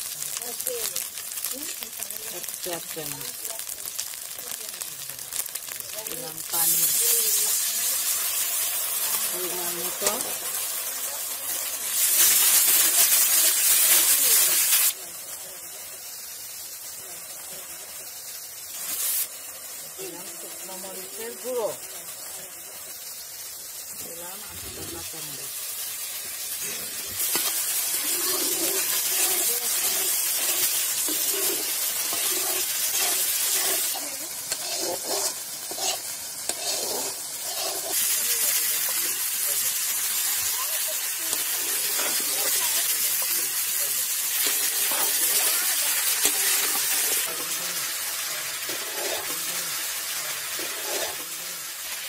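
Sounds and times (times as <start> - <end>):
wood fire crackling: 0.0 - 51.9
curry sizzling in a hot wok: 0.0 - 52.0.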